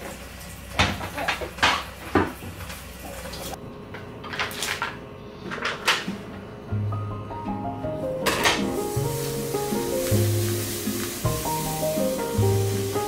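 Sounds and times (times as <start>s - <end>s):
items being set down: 8.2s - 9.4s.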